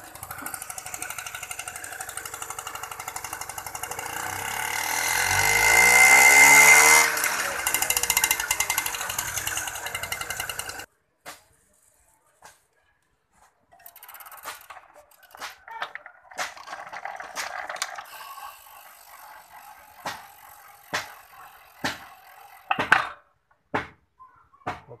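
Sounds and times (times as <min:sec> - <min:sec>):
moped engine running: 0:00.0 - 0:10.9, 0:13.8 - 0:23.2
sharp clicks and knocks: 0:21.8 - 0:24.0.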